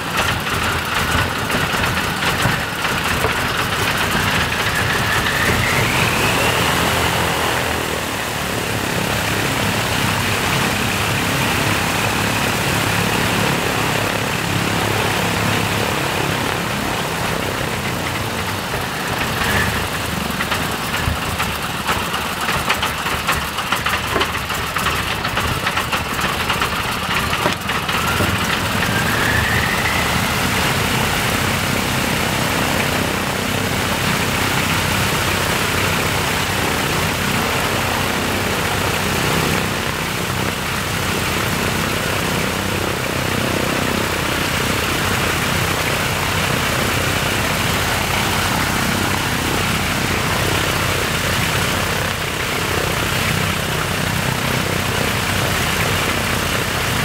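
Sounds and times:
radial piston engine running: 0:00.0 - 0:57.0
faint rising whine: 0:27.8 - 0:31.2.

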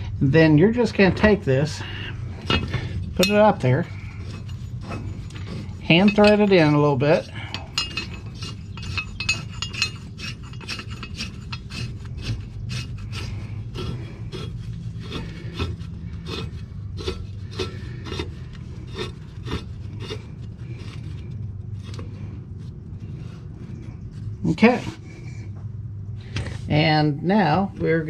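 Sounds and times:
low steady hum: 0:00.0 - 0:28.0
metal bolt clicking and scraping: 0:02.4 - 0:21.1.

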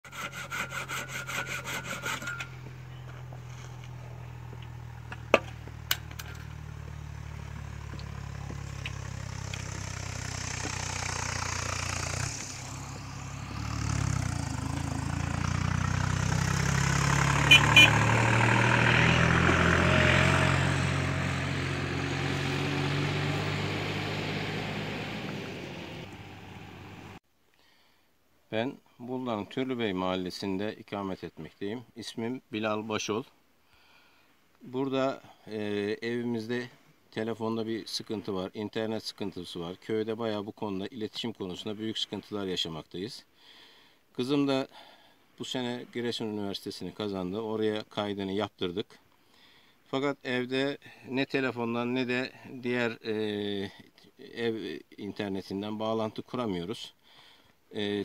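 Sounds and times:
hand saw cutting wood: 0:00.0 - 0:02.7
steady engine hum: 0:00.1 - 0:27.2.

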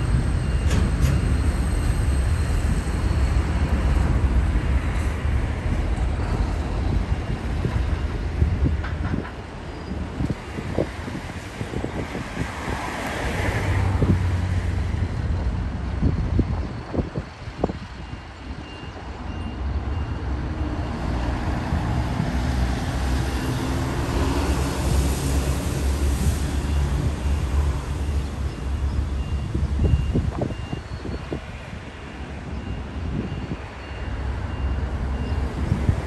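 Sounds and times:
reversing beeper: 0:00.0 - 0:03.8
diesel engines rumbling: 0:00.0 - 0:36.0
passing road traffic: 0:00.0 - 0:36.0.

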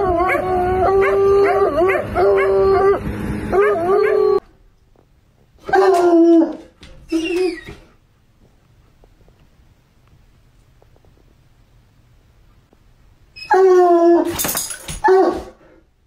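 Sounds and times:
dog baying: 0:05.6 - 0:07.9.

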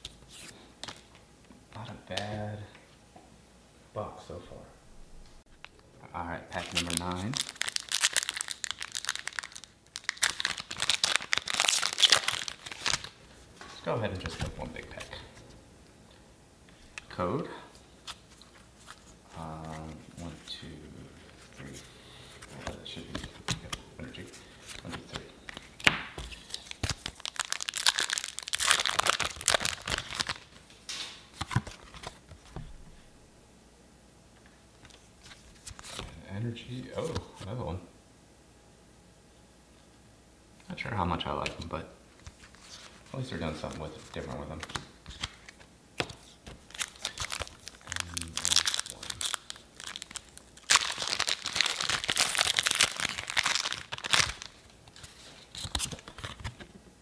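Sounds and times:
trading cards rustling and clicking: 0:06.5 - 0:13.1
foil wrapper crinkling and tearing: 0:06.5 - 0:13.2, 0:26.4 - 0:30.6, 0:46.7 - 0:56.6.

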